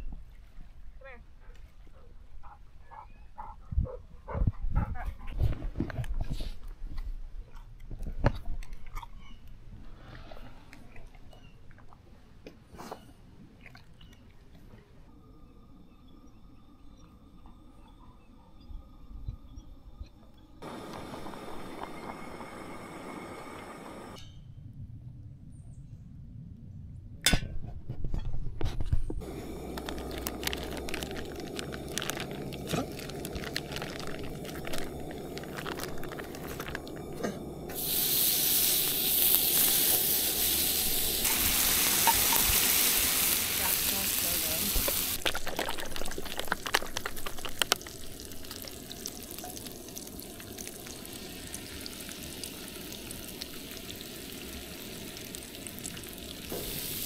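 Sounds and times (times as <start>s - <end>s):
bacon sizzling in a pan: 37.7s - 57.0s.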